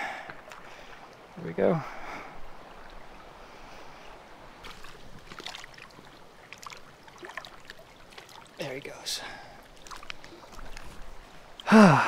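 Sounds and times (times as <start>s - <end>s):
water splashing and dripping: 0.2s - 1.3s, 2.0s - 12.0s
small sharp splashes: 4.6s - 8.6s, 9.6s - 11.7s.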